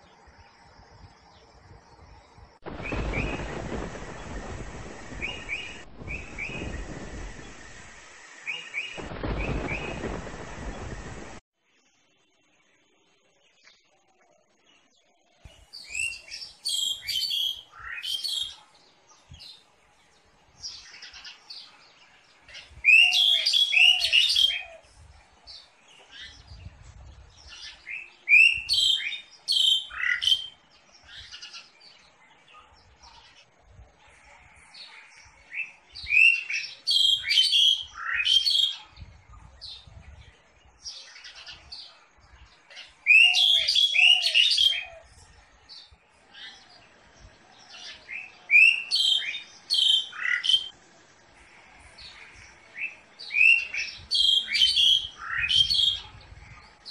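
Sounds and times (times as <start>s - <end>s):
songbird whistling phrases: 22.8s - 24.8s, 43.1s - 45.1s, 48.2s - 50.7s.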